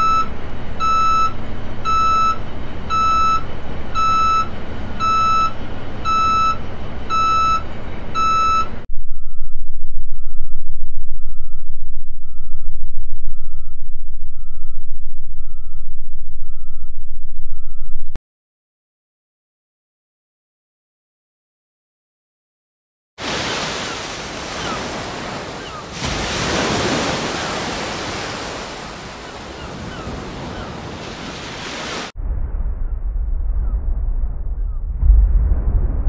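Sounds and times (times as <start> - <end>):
truck engine rumble: 0.0 - 8.9
reversing alarm beeping: 0.0 - 9.5, 13.3 - 18.1
loud low rumble: 32.2 - 36.0.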